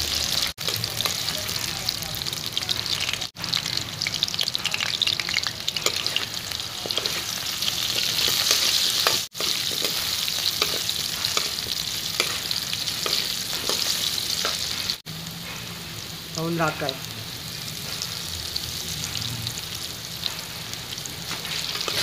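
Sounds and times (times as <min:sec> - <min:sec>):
potatoes frying in oil: 0:00.0 - 0:22.0
metal spatula scraping pan: 0:05.8 - 0:15.0, 0:21.3 - 0:22.0.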